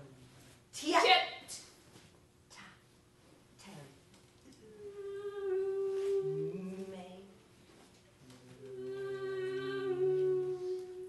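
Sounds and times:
voices humming held notes: 8.2 - 11.0.

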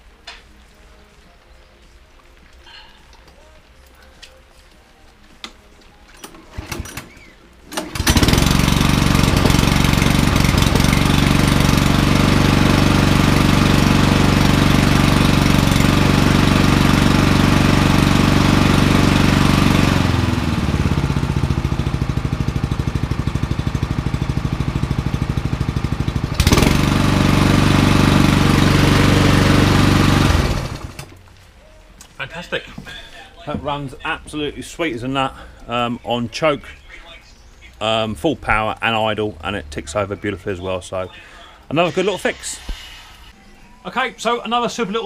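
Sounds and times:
lawnmower engine pull-started: 6.1 - 31.2.

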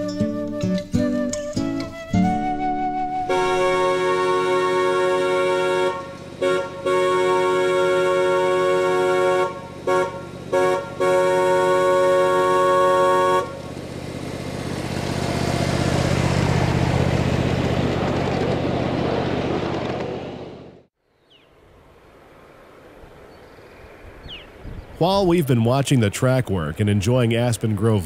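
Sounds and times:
train chord horn blasts: 3.2 - 13.8
train wheels rumbling on track: 3.4 - 20.9.

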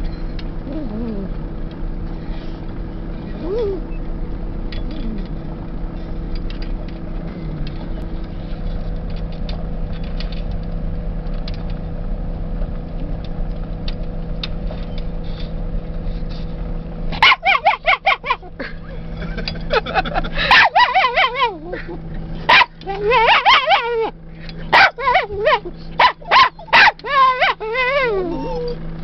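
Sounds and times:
car engine idling: 0.0 - 29.0
dogs whining: 0.6 - 1.5, 3.3 - 4.1, 17.2 - 18.6, 20.4 - 29.0.

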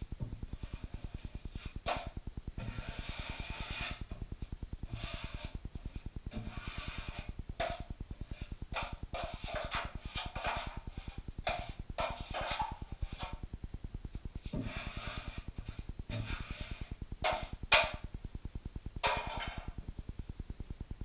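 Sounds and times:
drywall knife scraping: 0.7 - 4.2, 4.9 - 5.6, 6.3 - 13.4, 14.4 - 18.0.

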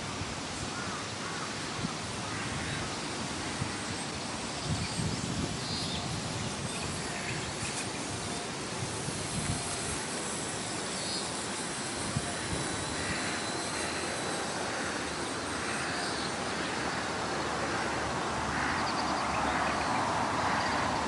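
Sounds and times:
wind rumbling on microphone: 0.0 - 15.6.

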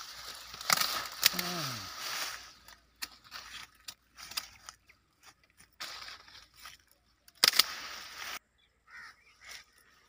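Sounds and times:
branch snapping: 0.0 - 8.1
rustling leaves: 0.0 - 10.0
pruning shears clicking: 0.3 - 1.6, 7.2 - 8.0.

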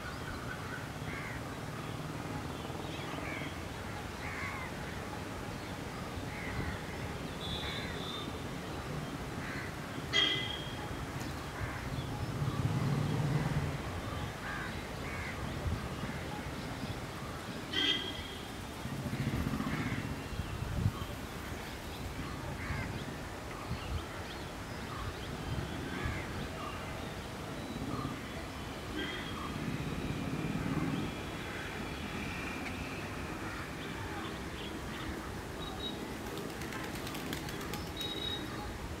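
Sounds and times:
crows cawing: 1.1 - 1.4, 4.2 - 4.7, 9.4 - 10.4, 14.4 - 15.4, 19.2 - 20.1.

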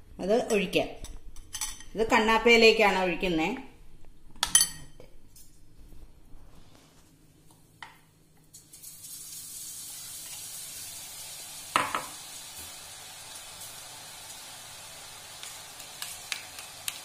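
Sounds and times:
batter dripping into hot oil: 8.5 - 17.0
oil sizzling: 8.5 - 17.0.

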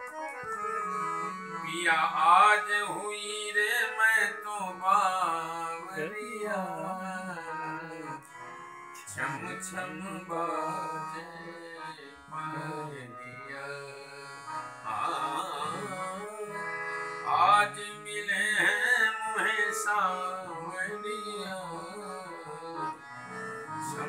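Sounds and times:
harmonium chords: 0.0 - 24.0
man singing devotional song: 0.8 - 24.0.

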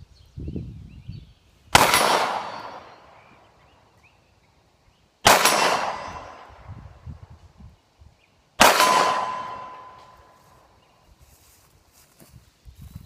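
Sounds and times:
pistol shots with ringing tail: 1.7 - 3.3, 5.2 - 6.8, 8.6 - 10.4.

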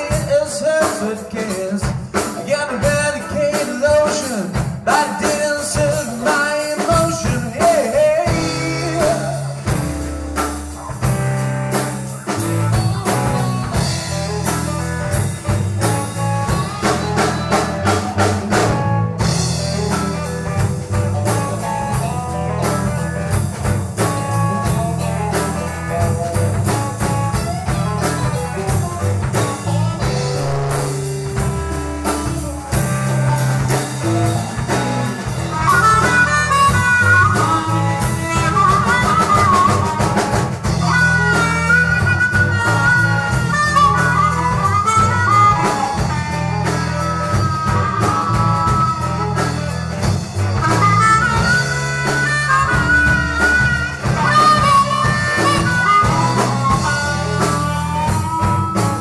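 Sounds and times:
bass line: 0.0 - 59.0
drum beat: 0.0 - 59.0
high lead melody: 2.2 - 59.0.

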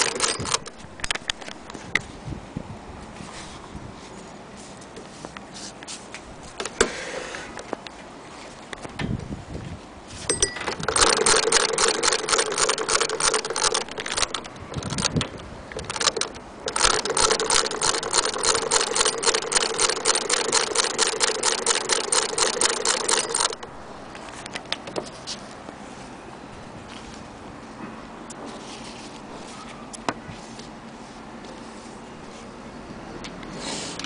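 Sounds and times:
sewing machine needle clicking: 0.0 - 0.8, 10.6 - 23.7.

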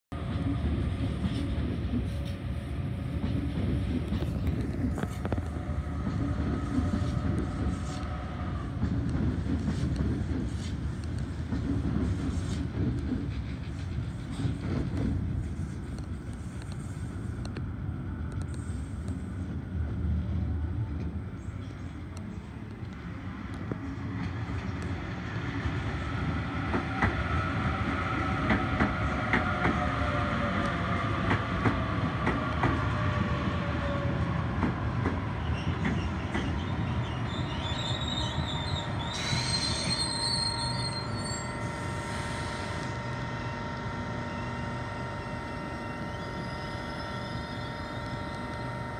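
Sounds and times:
train hum: 0.1 - 48.9
brake squeal: 37.0 - 42.7
electric train braking whine: 37.3 - 48.9.

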